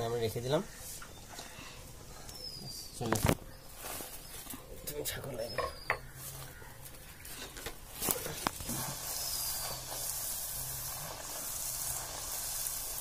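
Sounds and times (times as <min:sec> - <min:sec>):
puri sizzling in hot oil: 0:07.9 - 0:13.0.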